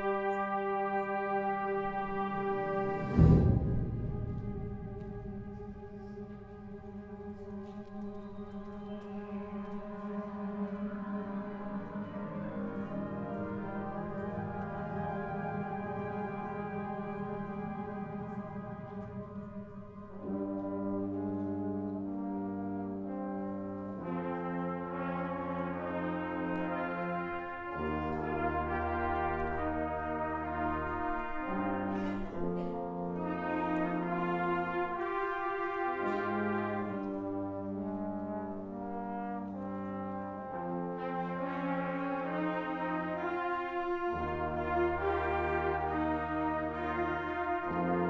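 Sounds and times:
concert band brass chords: 0:00.0 - 0:48.0
deep low note: 0:02.8 - 0:06.8.

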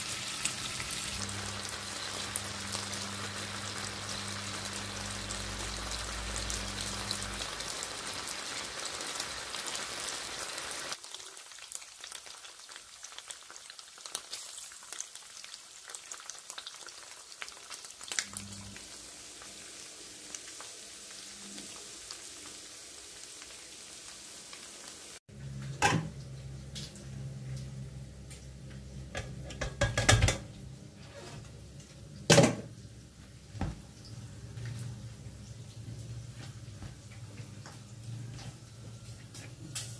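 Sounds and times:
meat sizzling in a frying pan: 0:00.0 - 0:26.0.

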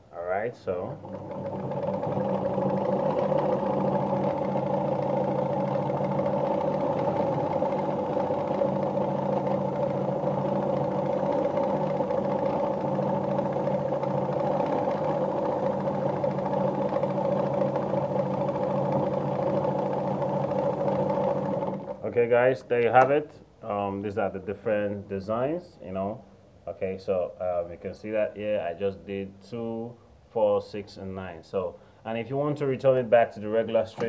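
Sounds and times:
sewing machine running: 0:00.8 - 0:22.1.

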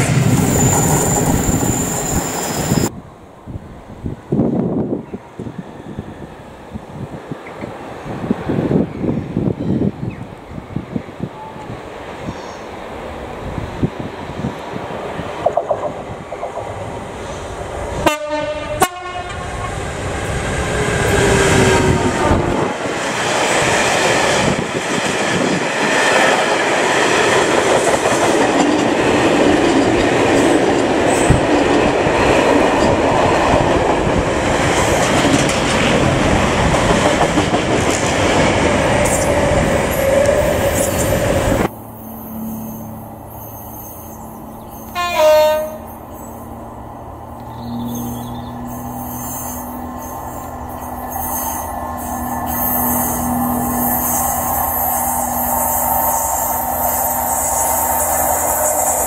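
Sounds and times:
locomotive horn blasts: 0:18.0 - 0:19.5, 0:44.9 - 0:46.0.

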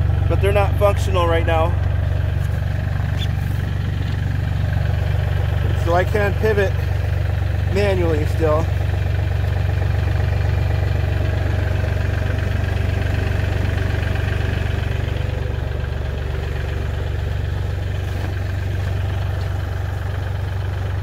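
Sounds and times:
diesel tractor engine idling: 0:00.0 - 0:21.0.

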